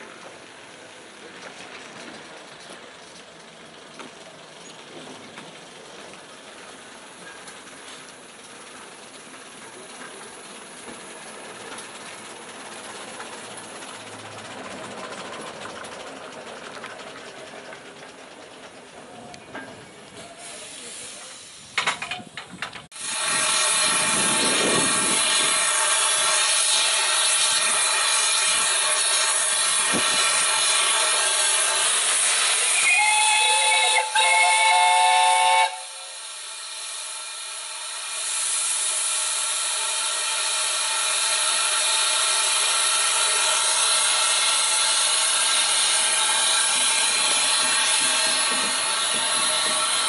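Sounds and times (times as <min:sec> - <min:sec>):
steam locomotive hissing: 0:00.0 - 0:50.0
steam whistle blasts: 0:23.0 - 0:36.3.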